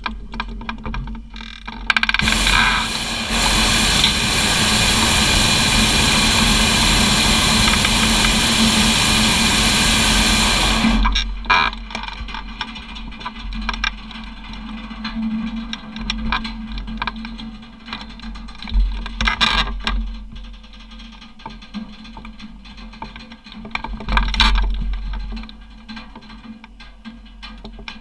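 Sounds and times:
propane burner roaring: 2.2s - 11.5s.

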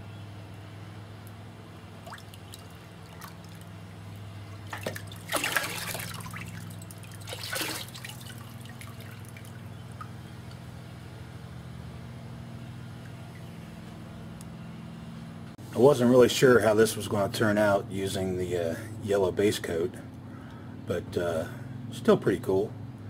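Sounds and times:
low steady hum: 0.0s - 23.0s
water sloshing in a plastic tub: 1.9s - 10.2s.

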